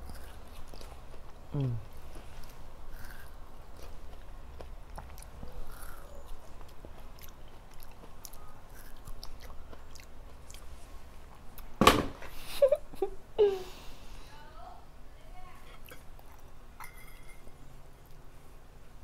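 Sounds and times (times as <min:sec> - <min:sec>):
biting and chewing melon: 0:00.0 - 0:11.8
sharp knock: 0:11.8 - 0:12.2.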